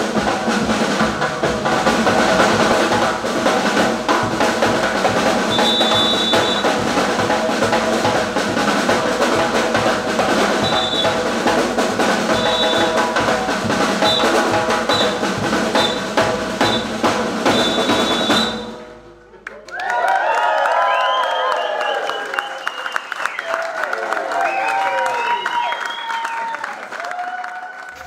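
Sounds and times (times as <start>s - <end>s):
snare and bass drumming: 0.0s - 19.1s
shrill whistle blasts: 5.5s - 6.8s, 10.6s - 11.3s, 12.3s - 13.1s, 14.0s - 18.8s, 20.9s - 23.5s, 24.5s - 26.6s.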